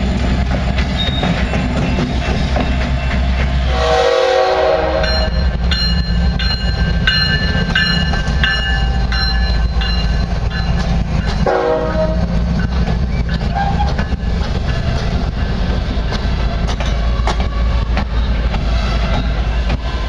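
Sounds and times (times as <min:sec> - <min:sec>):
locomotive engine rumble: 0:00.0 - 0:20.0
locomotive horn blasts: 0:03.7 - 0:05.4, 0:11.4 - 0:12.3
bell ringing: 0:05.0 - 0:11.5.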